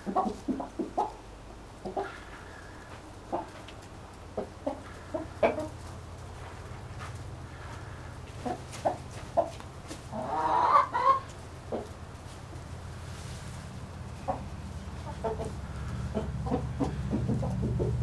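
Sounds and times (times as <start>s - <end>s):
chickens clucking: 0.0s - 18.0s
chicken drawn-out call: 7.5s - 12.0s, 13.0s - 18.0s.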